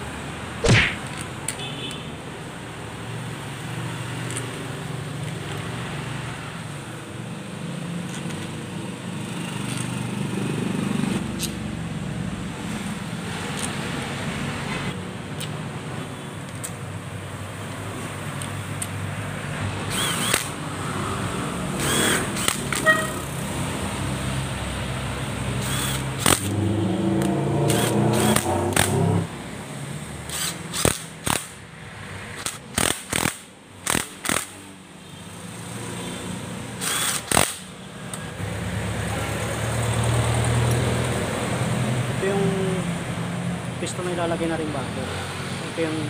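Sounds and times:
brief whir: 0.6 - 1.2, 19.9 - 20.5, 25.6 - 26.6.

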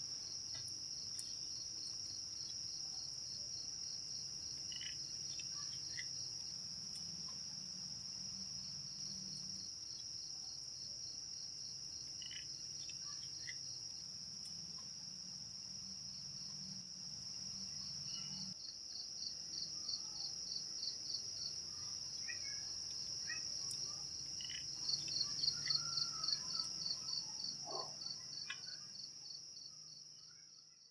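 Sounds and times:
crickets chirring: 0.1 - 30.8.

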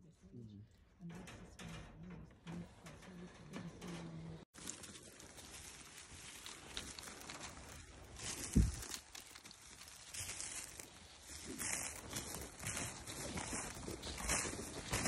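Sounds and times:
footsteps through wet grass: 4.6 - 15.0.

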